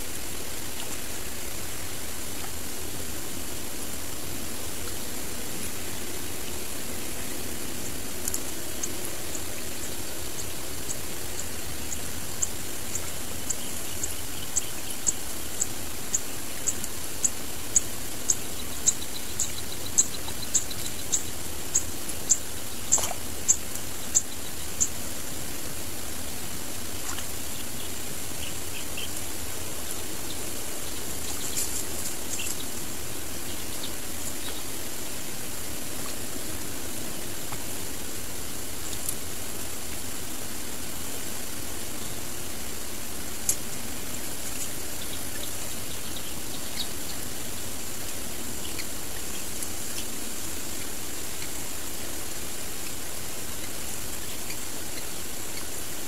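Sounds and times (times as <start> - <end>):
outdoor background hiss: 0.0 - 56.0.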